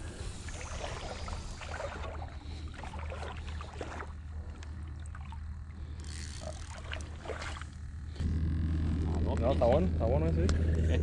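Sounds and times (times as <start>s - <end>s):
shallow water sloshing: 0.0s - 8.2s.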